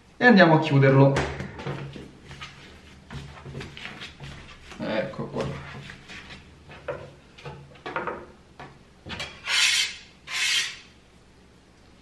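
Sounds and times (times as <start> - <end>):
hands patting dough on wood: 1.2 - 7.7
metal scraper scraping wood: 9.2 - 10.9.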